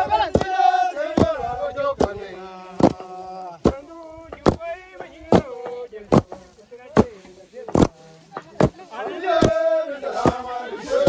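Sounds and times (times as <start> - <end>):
men chanting a work song: 0.0 - 11.0
hand tools thudding on ground: 0.2 - 0.6, 1.2 - 11.0.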